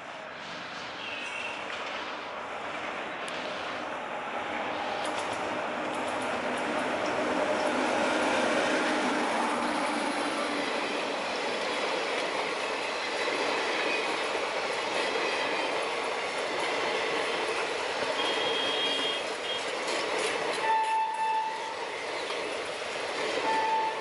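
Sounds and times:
train wheels clattering over rails: 0.0 - 24.0
train horn blasts: 18.1 - 19.7, 20.6 - 21.8, 23.4 - 24.0.

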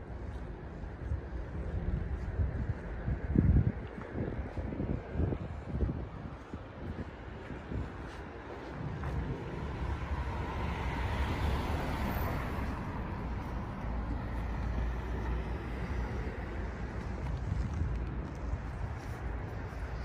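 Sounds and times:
steady low rumble: 0.0 - 20.0
car driving past: 8.8 - 16.4.

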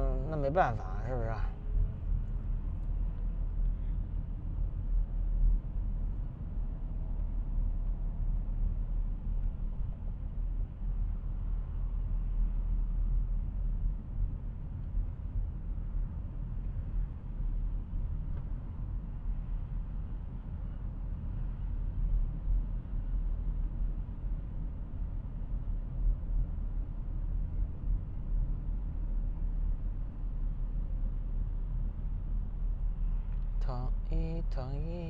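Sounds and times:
car road and engine rumble: 0.0 - 35.0.

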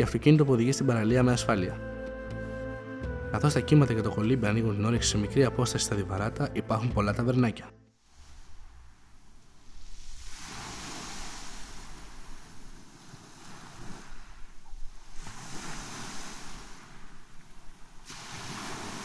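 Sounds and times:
waves washing up pebble beach: 9.5 - 19.0.

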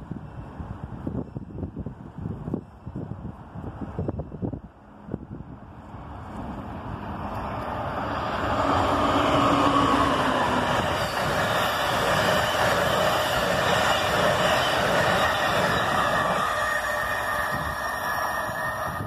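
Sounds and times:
train wheels rushing on rails: 5.2 - 19.0.

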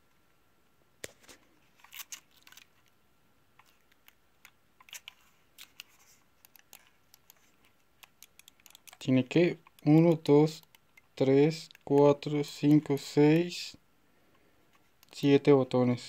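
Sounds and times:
plastic film crinkling: 1.1 - 2.9.

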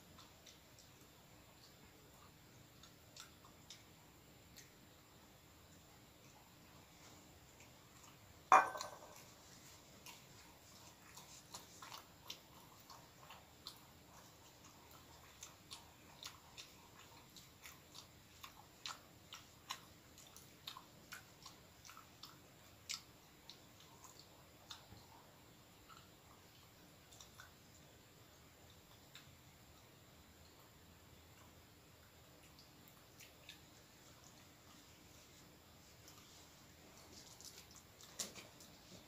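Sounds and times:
person chewing bread: 0.0 - 39.0
sharp knock: 8.5 - 9.2.

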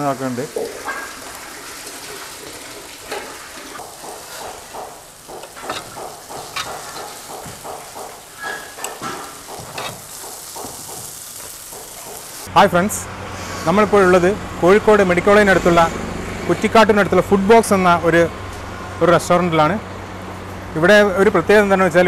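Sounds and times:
oil sizzling in a wok: 0.0 - 12.5.

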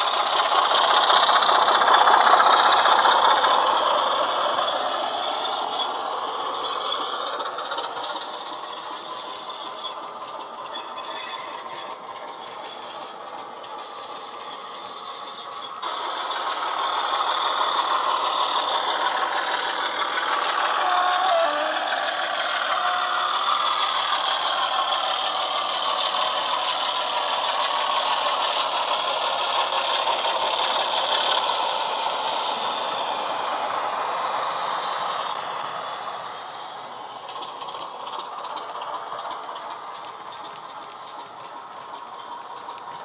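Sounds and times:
model train rattling on track: 0.0 - 43.0
diesel engine sound from small speaker: 15.8 - 36.4.

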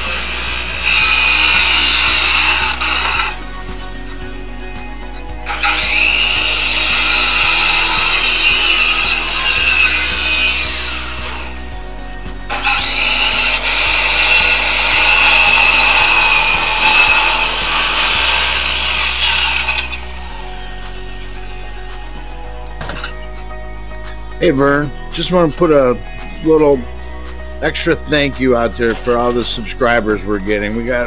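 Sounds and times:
power tool working wood: 0.0 - 3.5, 5.4 - 11.7, 12.4 - 22.5.

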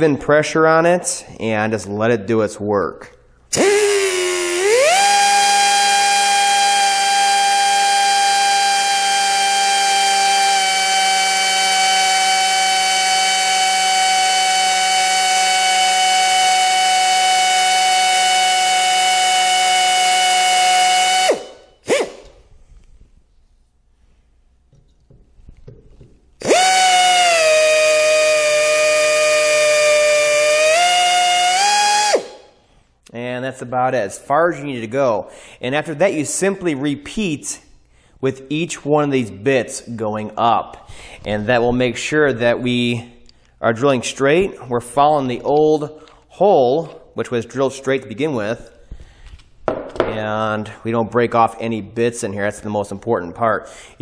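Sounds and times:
electric drill whining: 3.6 - 22.3, 26.4 - 32.4.

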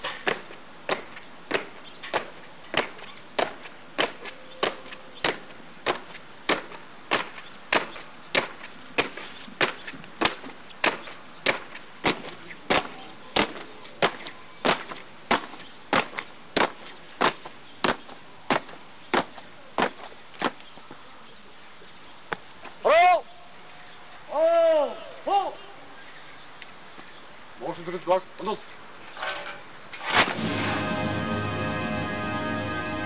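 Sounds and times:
boots stamping in step: 0.0 - 20.9.

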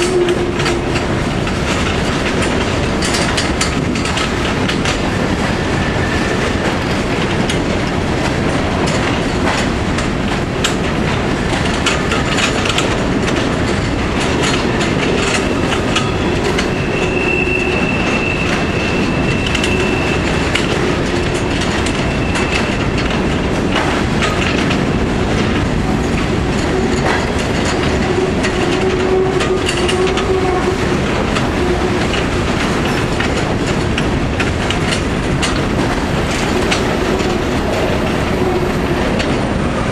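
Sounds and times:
freight train rumbling: 0.0 - 39.9
wheels clattering over rail joints: 0.0 - 39.9
high wheel squeal: 15.5 - 20.8, 21.9 - 22.9.

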